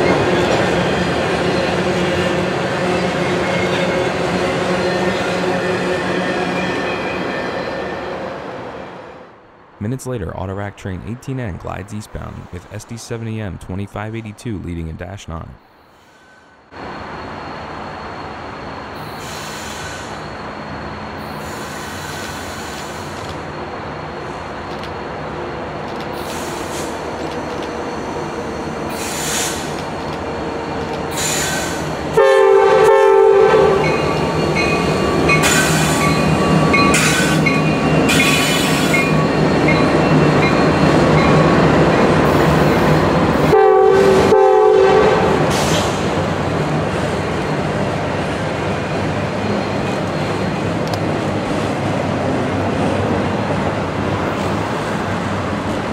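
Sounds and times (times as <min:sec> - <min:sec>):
freight train rumble: 0:00.0 - 0:55.9
train wheels squealing: 0:16.0 - 0:23.3, 0:31.1 - 0:31.9, 0:33.8 - 0:41.4, 0:49.4 - 0:50.6
locomotive horn blasts: 0:32.1 - 0:33.9, 0:43.4 - 0:45.6.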